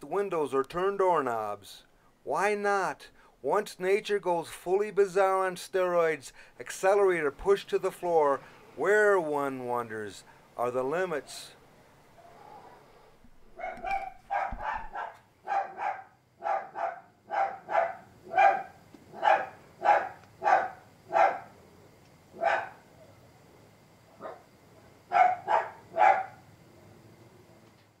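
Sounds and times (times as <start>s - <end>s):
dog barking: 13.5s - 21.5s, 22.4s - 22.8s, 24.2s - 24.5s, 25.1s - 26.4s.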